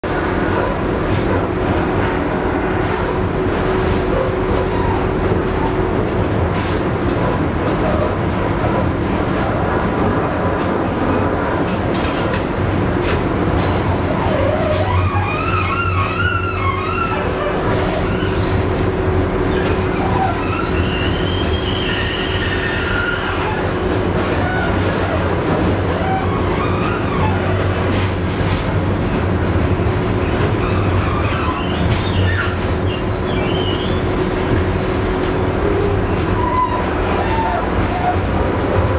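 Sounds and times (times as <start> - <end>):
tram wheels rumbling on rails: 0.0 - 38.9
high wheel squeal: 14.1 - 25.3, 30.6 - 34.1.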